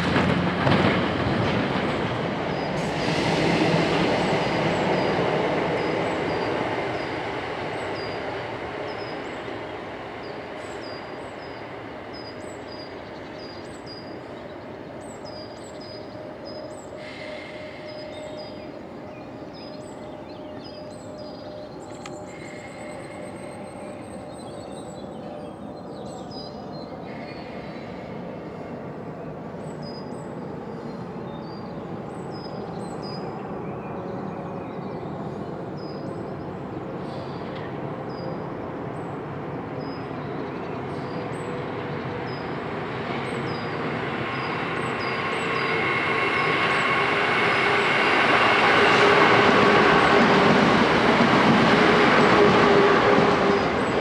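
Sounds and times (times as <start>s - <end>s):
train rumbling to a stop: 0.0s - 54.0s.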